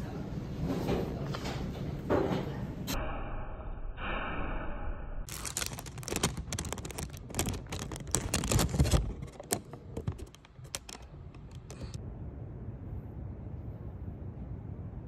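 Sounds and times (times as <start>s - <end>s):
paper crinkling and rustling: 5.3s - 12.0s.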